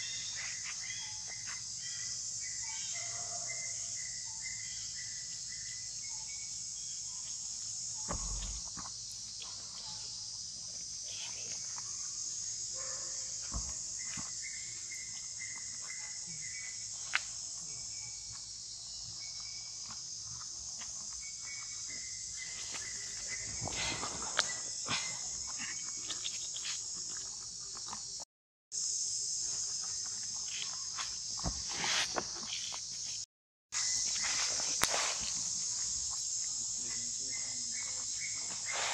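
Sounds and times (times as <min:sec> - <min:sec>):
insect chorus drone: 0:00.0 - 0:28.2, 0:28.8 - 0:38.9
monkeys rustling and clicking: 0:22.5 - 0:28.1.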